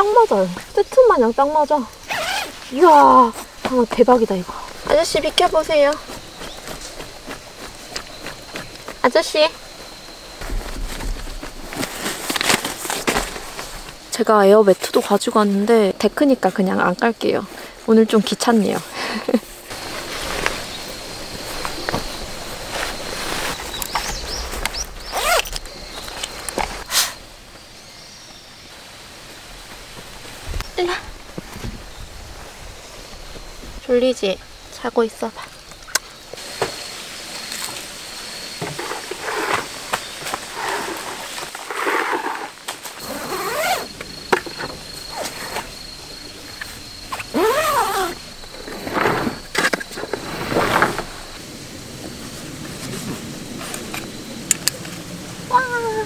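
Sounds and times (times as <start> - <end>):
tent fabric rustling: 0.1 - 15.8, 17.3 - 27.3, 38.8 - 51.4
nylon bedding rustling: 2.1 - 4.2, 40.4 - 43.9.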